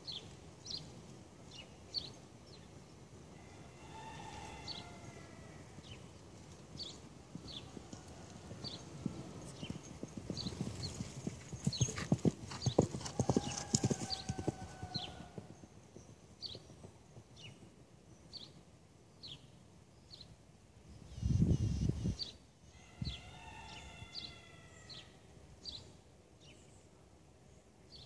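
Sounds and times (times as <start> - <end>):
horse hoofbeats: 5.8 - 18.0.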